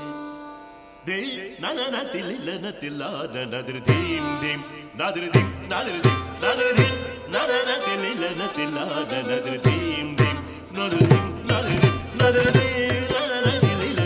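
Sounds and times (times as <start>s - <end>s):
violin accompaniment: 0.0s - 1.7s, 3.7s - 14.0s
man singing: 1.0s - 14.0s.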